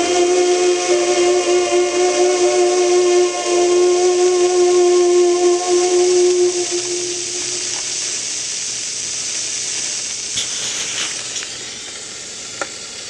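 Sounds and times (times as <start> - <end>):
held musical note: 0.0 - 8.3
vinyl surface hiss: 0.0 - 13.0.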